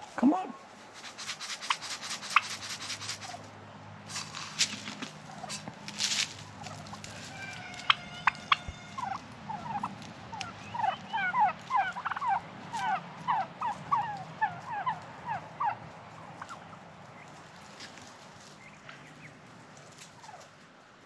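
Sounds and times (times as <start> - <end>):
young turkeys chirping: 4.1 - 20.6.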